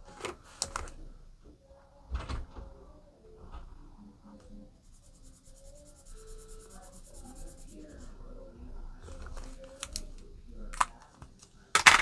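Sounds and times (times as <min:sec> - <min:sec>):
marker scribbling on paper: 0:04.8 - 0:08.2.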